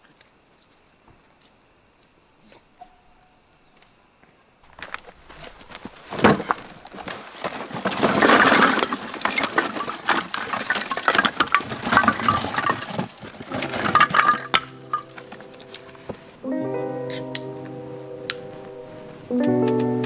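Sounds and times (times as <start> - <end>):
rustling: 4.6 - 16.4.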